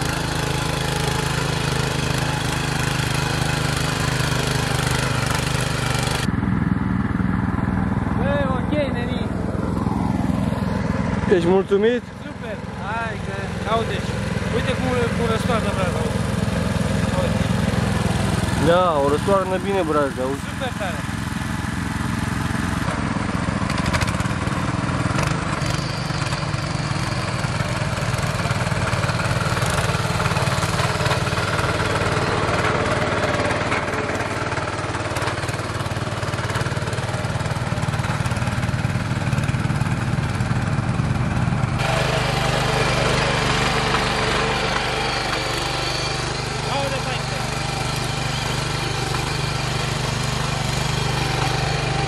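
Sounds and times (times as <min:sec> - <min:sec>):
tiller engine running under load: 0:00.0 - 0:52.0.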